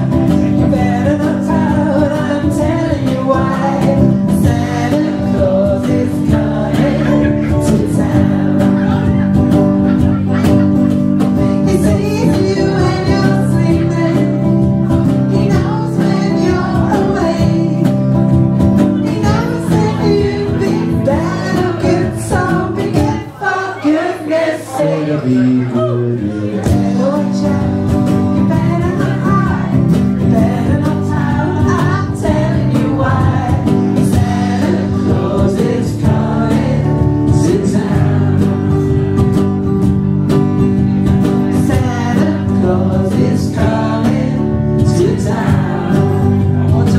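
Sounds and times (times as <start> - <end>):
woman singing: 0.0 - 9.2, 11.4 - 18.2, 19.0 - 25.0, 26.7 - 38.0
electric guitar: 0.0 - 23.5, 25.1 - 46.9
live band music: 0.0 - 46.9.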